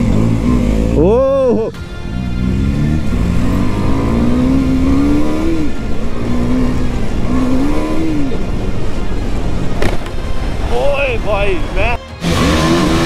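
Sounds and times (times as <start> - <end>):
motorcycle engine accelerating: 0.0 - 10.2, 12.2 - 13.0.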